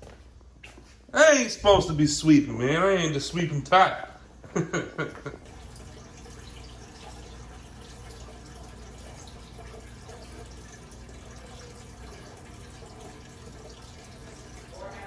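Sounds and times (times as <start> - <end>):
filter outflow splashing water: 5.3 - 15.0.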